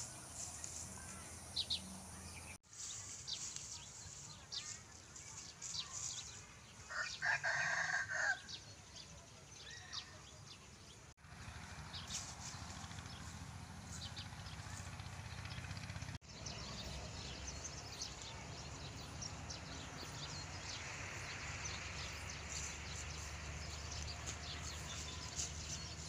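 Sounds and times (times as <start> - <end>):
rooster crowing: 6.9 - 8.5
small birds chirping: 8.4 - 26.0.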